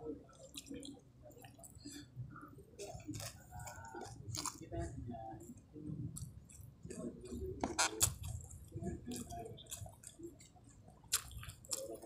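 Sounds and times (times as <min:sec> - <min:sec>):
wet chewing and lip-smacking: 0:00.2 - 0:02.1, 0:02.8 - 0:04.8, 0:05.9 - 0:12.0.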